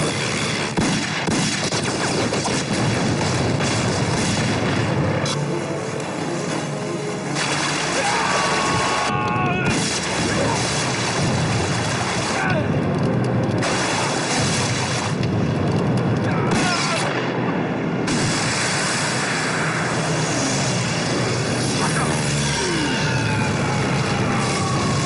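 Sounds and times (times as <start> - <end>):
gunfire: 0.0 - 5.0, 9.6 - 12.6, 13.6 - 15.3, 16.5 - 17.4, 18.0 - 19.0
dramatic background music: 0.0 - 25.0
explosions booming: 0.6 - 5.2, 9.6 - 19.3.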